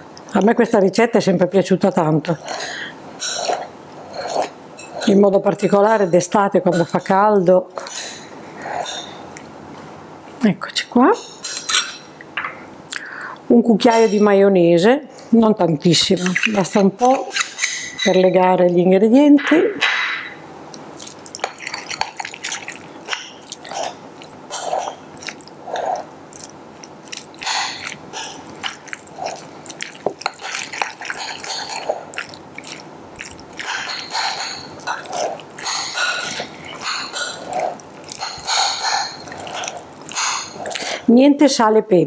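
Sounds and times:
wet squelching mixing: 15.8 - 18.2, 20.7 - 41.1.

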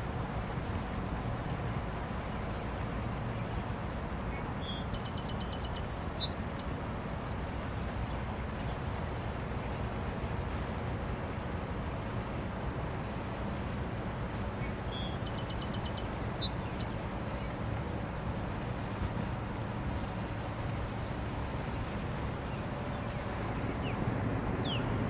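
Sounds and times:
low outdoor rumble: 0.0 - 25.0
bird chirping: 4.0 - 6.6, 14.3 - 17.5, 24.6 - 24.9.

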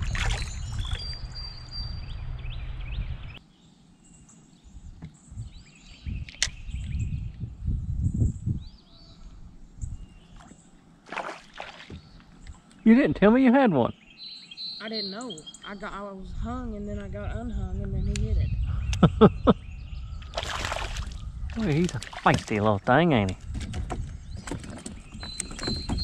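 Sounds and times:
low rumbling: 0.0 - 3.4
birds chirping faintly: 0.0 - 26.0.

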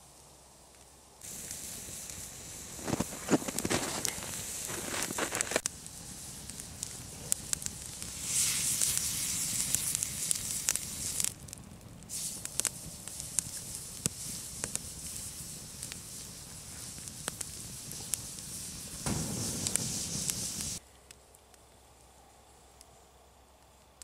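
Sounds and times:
campfire crackling: 0.0 - 24.0
burning wood popping: 0.7 - 21.3
steak sizzling on hot stone: 1.2 - 11.4, 12.1 - 20.8.

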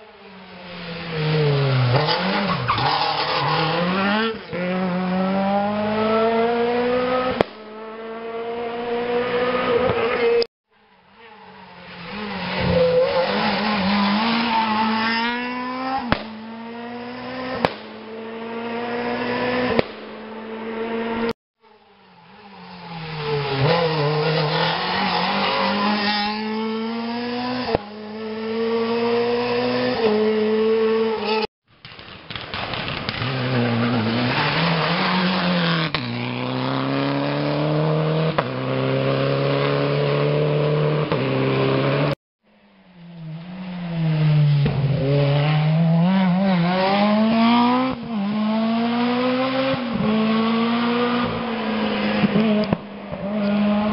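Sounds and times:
rally cars at full throttle: 0.0 - 53.9
engine backfire cracks: 31.8 - 33.4.

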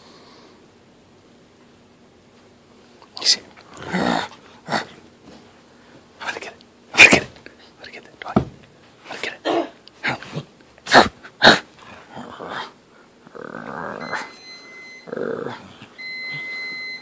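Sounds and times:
dog whining: 13.3 - 17.0.

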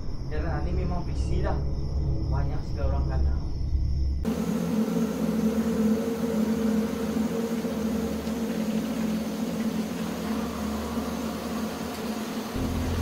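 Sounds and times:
soft hiss: 4.3 - 13.0.

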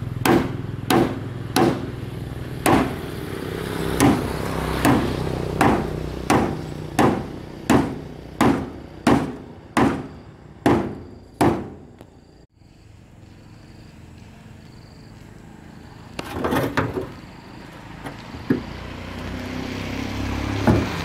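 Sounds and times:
hammer striking wooden planks: 0.2 - 2.0, 2.6 - 3.0, 4.0 - 11.9, 18.4 - 18.7, 20.6 - 21.0.

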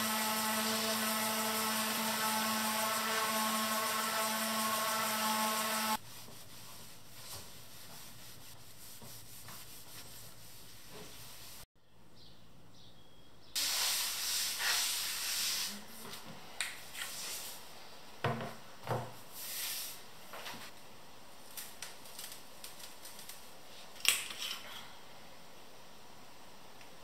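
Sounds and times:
cloth rubbing hiss: 5.6 - 11.7, 13.6 - 15.9, 19.3 - 20.1.

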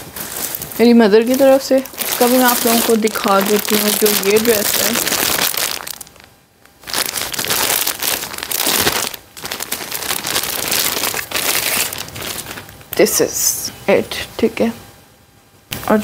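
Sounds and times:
plastic bag crinkling: 0.0 - 12.8.

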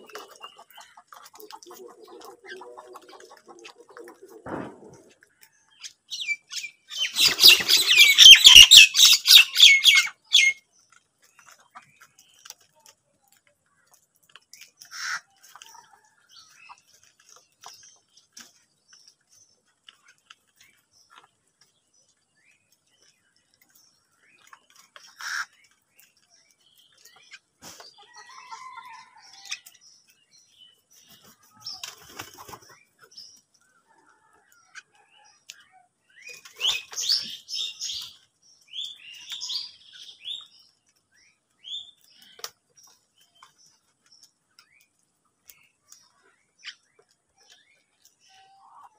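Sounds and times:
wings flapping: 6.9 - 8.8, 31.1 - 32.8
crows calling: 6.9 - 10.6, 14.8 - 15.3, 25.0 - 25.7.

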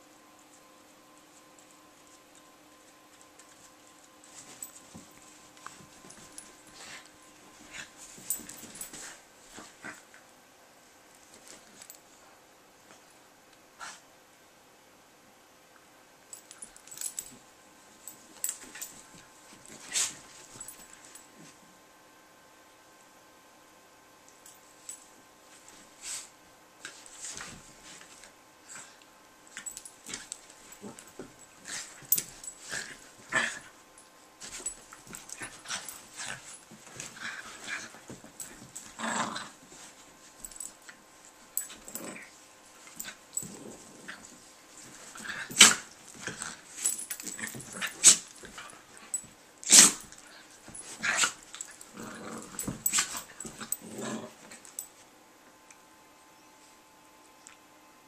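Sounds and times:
dogs growling and snapping: 35.1 - 39.6, 41.6 - 42.3, 49.6 - 54.7.

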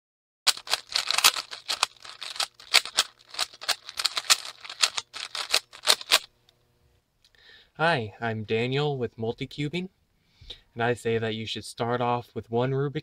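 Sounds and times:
puzzle cube plastic clicks: 0.5 - 6.3.

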